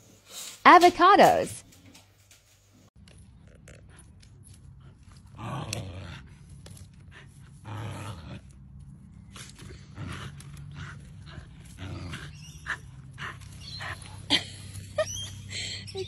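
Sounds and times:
dog growling and grunting playfully: 0:04.8 - 0:08.6, 0:09.4 - 0:15.6.

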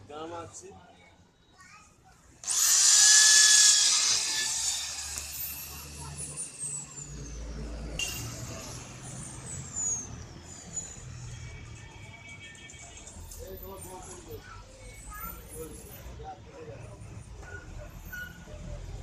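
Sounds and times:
cordless drill boring into plastic: 0:02.4 - 0:06.6.

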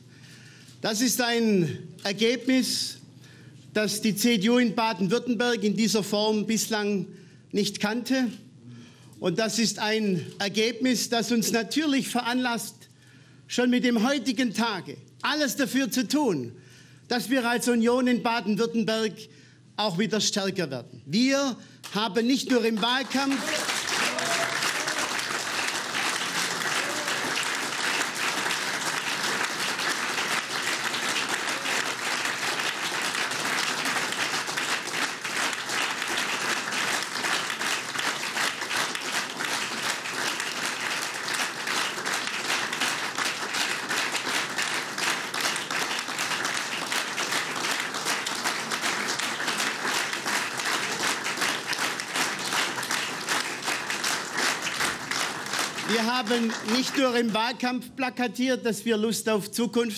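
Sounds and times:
audience applause: 0:22.6 - 0:57.3.

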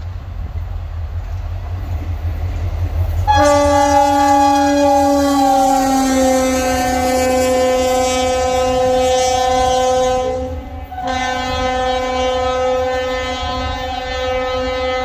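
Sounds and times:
low rumble of passing train: 0:00.0 - 0:15.0
locomotive air horn blast: 0:03.3 - 0:15.0.

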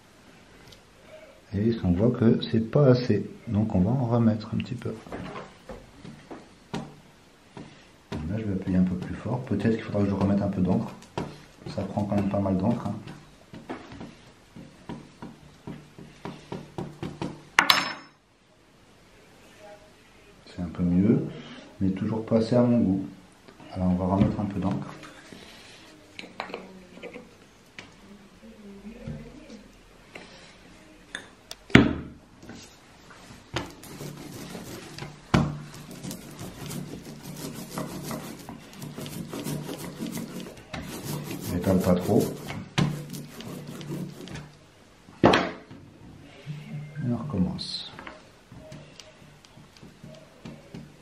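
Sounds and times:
ink roller rasping: 0:33.6 - 0:44.5
metal spoon rubbing on paper: 0:33.7 - 0:35.1, 0:35.7 - 0:44.5.

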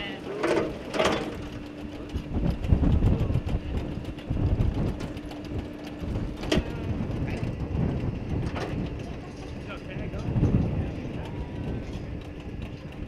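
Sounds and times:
metal cradles clanking and rattling: 0:00.0 - 0:02.2.

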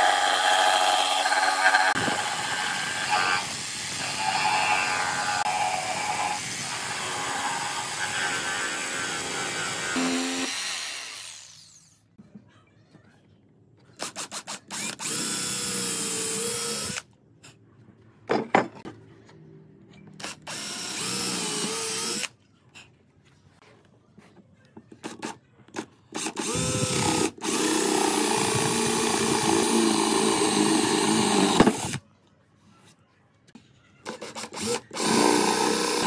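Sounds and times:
drill bit boring wood: 0:00.0 - 0:11.8, 0:14.7 - 0:17.0, 0:20.5 - 0:22.3, 0:26.2 - 0:32.0, 0:34.2 - 0:36.0
cordless drill whining: 0:00.0 - 0:11.9, 0:14.7 - 0:17.0, 0:20.2 - 0:22.3, 0:26.2 - 0:32.0, 0:34.1 - 0:36.0.

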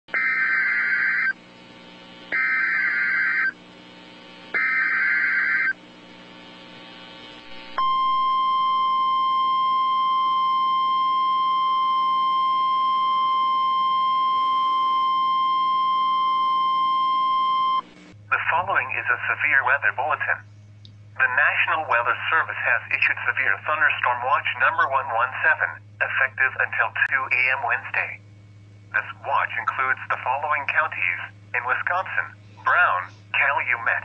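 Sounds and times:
steady high alarm tone: 0:00.1 - 0:01.4, 0:02.3 - 0:03.6, 0:04.5 - 0:05.8, 0:07.7 - 0:17.8
buzzing digital data tones: 0:02.3 - 0:03.6, 0:04.5 - 0:05.8.

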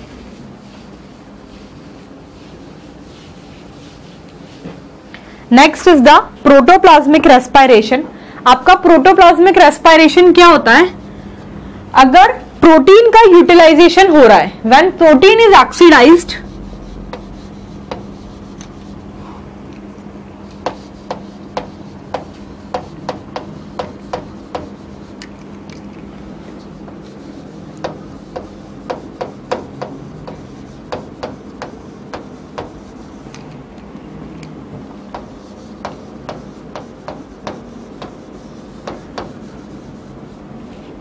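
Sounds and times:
low steady hum: 0:00.0 - 0:41.0
chalk scratching on chalkboard: 0:00.4 - 0:04.8, 0:15.8 - 0:19.4, 0:20.0 - 0:25.4, 0:26.3 - 0:33.7, 0:34.8 - 0:41.0.

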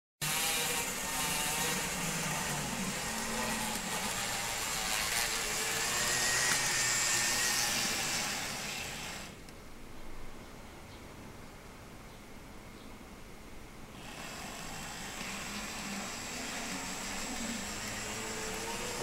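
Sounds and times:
model electric train whirring: 0:00.2 - 0:09.4, 0:14.0 - 0:19.0.

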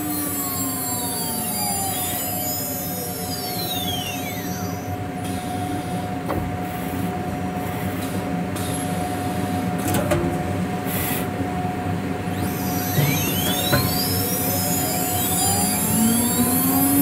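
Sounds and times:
steady machine hum: 0:00.0 - 0:09.8, 0:10.5 - 0:17.0
cnc spindle head moving: 0:12.3 - 0:17.0.

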